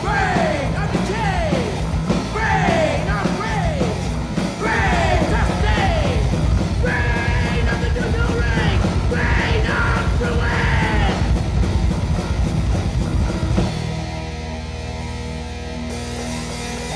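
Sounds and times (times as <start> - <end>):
fast pounding drums: 0.0 - 14.6
distorted electric guitars: 0.0 - 16.9
person yelling vocals: 6.8 - 11.3.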